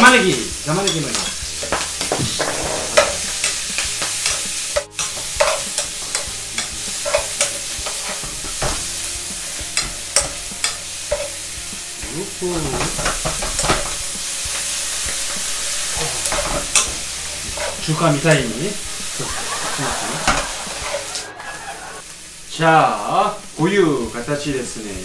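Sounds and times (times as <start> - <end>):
metal utensils scraping a pan: 0.0 - 11.6, 12.5 - 19.2, 19.8 - 21.7
vegetables sizzling in a frying pan: 0.0 - 25.0.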